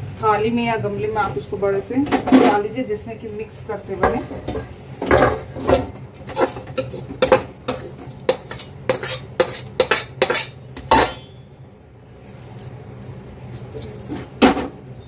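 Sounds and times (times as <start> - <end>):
metal spoon scraping and clinking: 6.3 - 11.3.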